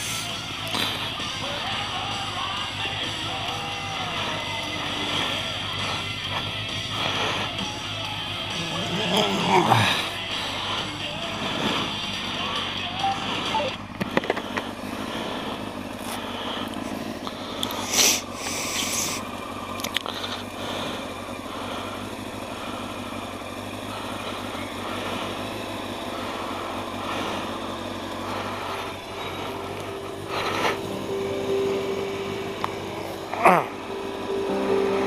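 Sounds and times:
motorcycle engine idling: 0.0s - 35.0s
steady higher tone: 29.1s - 35.0s.

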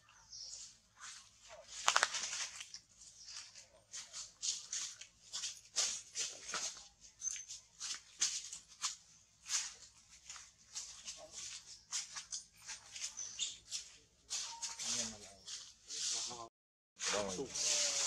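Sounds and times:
crisp rustling clicks: 1.7s - 2.9s.

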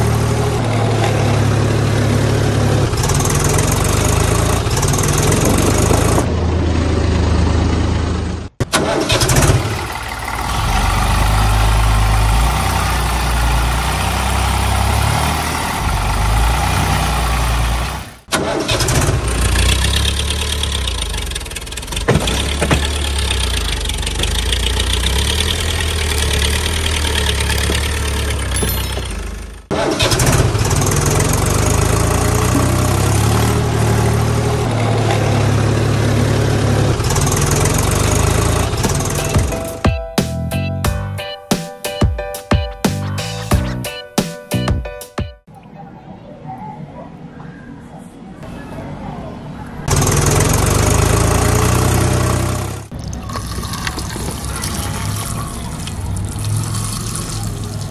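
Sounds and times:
tractor engine running: 0.0s - 41.5s, 49.6s - 57.9s.

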